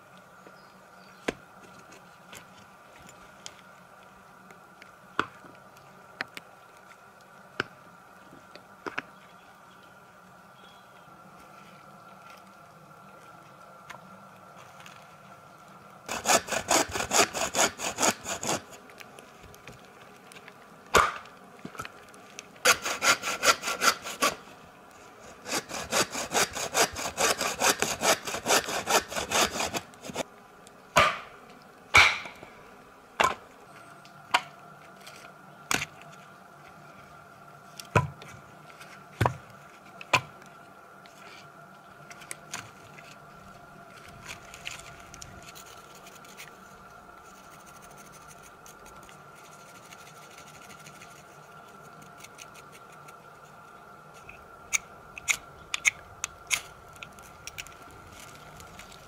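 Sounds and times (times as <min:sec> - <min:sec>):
hand saw cutting wood: 0:16.1 - 0:18.8, 0:22.6 - 0:24.5, 0:25.2 - 0:30.2.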